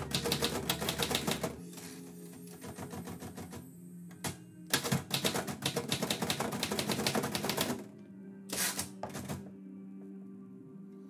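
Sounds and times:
loud typewriter clatters: 0.0 - 1.6, 2.7 - 3.6, 4.7 - 7.8
typewriter key strikes: 4.7 - 7.8.

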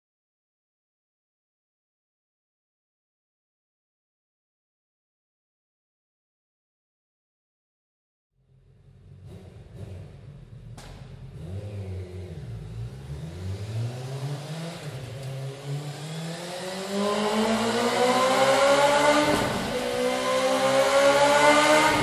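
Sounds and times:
motorcycle engine revving: 8.4 - 22.0.

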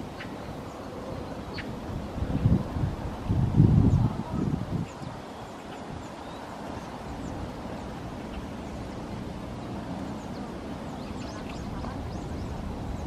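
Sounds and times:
bird chirps: 10.0 - 13.0.

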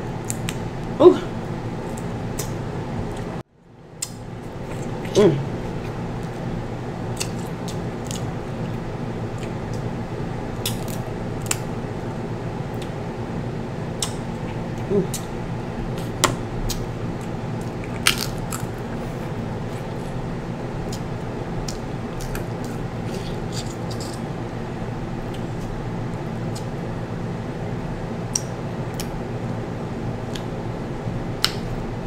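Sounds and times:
steady background hum: 0.0 - 32.0
crab shell cracking: 18.0 - 18.7.

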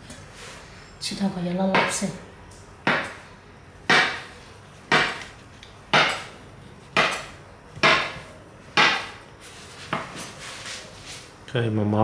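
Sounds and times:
cleaver chopping on countertop: 2.9 - 3.2, 3.9 - 4.3, 4.9 - 5.2, 7.0 - 9.2.

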